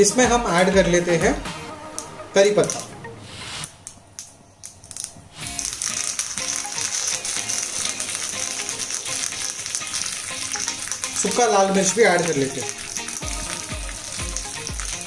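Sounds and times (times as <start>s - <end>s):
leaves and seeds crackling in hot fat: 4.2s - 15.0s.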